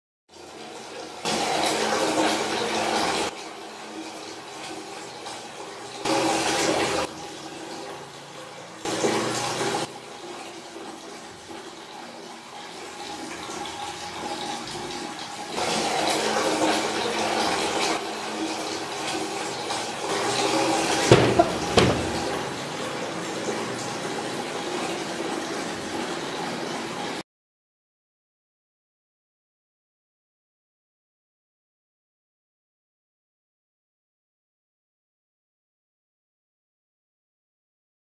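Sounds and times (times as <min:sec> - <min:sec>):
water rushing in bursts: 0:00.4 - 0:27.2
sharp knocks: 0:21.1 - 0:22.6.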